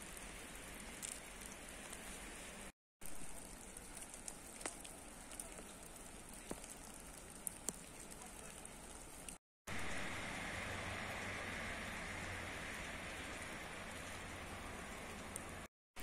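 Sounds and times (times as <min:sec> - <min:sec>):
sleet hissing on wet street: 0:09.7 - 0:15.7.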